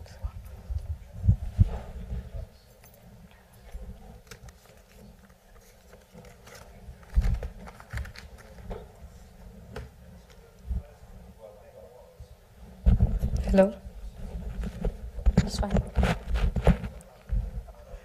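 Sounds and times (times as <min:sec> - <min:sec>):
microphone handling clicks and knocks: 0:12.8 - 0:13.6, 0:14.2 - 0:17.7.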